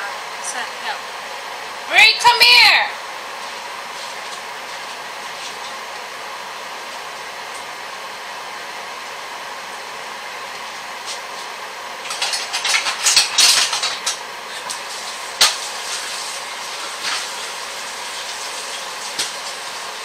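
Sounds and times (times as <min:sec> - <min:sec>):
clattering and scraping: 0:12.0 - 0:17.3
hot water hissing in stockpot: 0:14.4 - 0:20.0.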